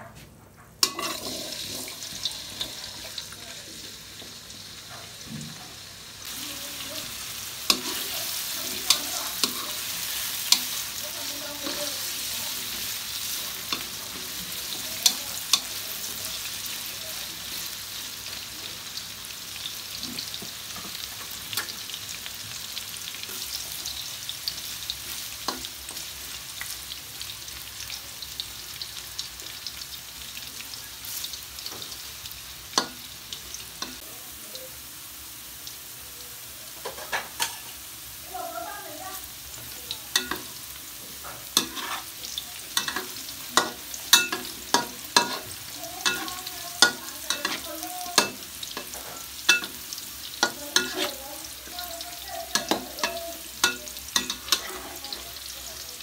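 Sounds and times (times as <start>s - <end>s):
metal spatula scraping a pan: 0.8s - 2.8s, 41.2s - 51.2s, 52.4s - 55.2s
vegetables sizzling in hot oil: 0.8s - 56.0s.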